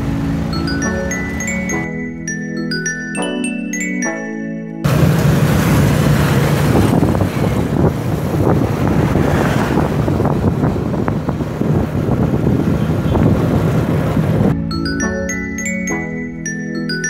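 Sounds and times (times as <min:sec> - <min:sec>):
street traffic: 0:00.0 - 0:03.9, 0:04.8 - 0:15.8
motorcycles: 0:04.9 - 0:14.5
wind buffeting microphone: 0:04.9 - 0:14.6.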